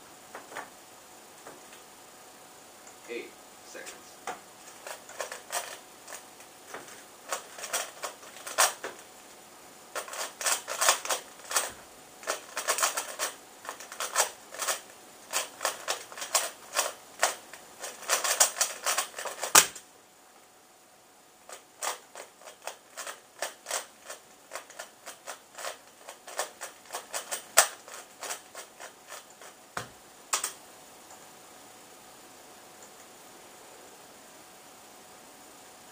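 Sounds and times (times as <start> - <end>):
puzzle cube plastic clicks: 4.6 - 9.0, 9.9 - 19.8, 21.5 - 29.6, 30.3 - 30.6.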